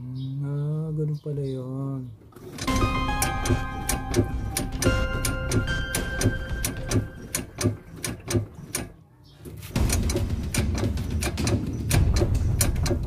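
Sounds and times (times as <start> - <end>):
background music: 2.7 - 8.4, 9.8 - 13.0
steady clicking beat: 2.7 - 8.8, 9.8 - 13.0.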